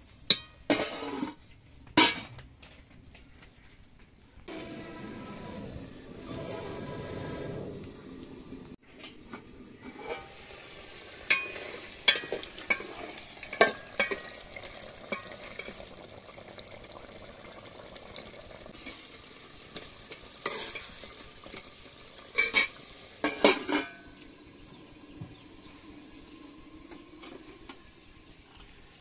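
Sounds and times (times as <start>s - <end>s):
simmering pot hiss: 0.0s - 2.1s, 4.5s - 29.0s
ladle scraping steel pot: 0.4s - 1.5s, 9.0s - 16.0s, 19.7s - 28.8s
metal plate clanking on pot: 11.3s - 14.4s, 22.4s - 24.2s.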